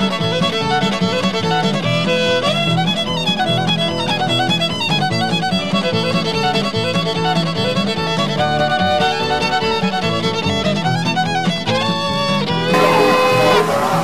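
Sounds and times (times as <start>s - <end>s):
fiddle playing fast tune: 0.0s - 14.0s
steady accompaniment: 12.7s - 14.0s.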